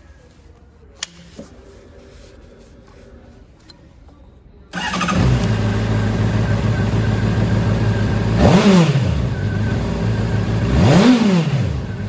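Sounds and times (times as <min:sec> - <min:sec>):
motorcycle engine starting and idling: 0:04.7 - 0:12.0.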